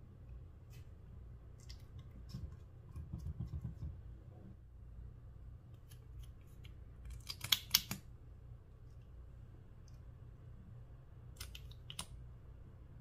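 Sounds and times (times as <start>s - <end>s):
makeup brush dabbing slime: 0.6s - 4.1s
sharp plastic clicks: 6.6s - 8.1s.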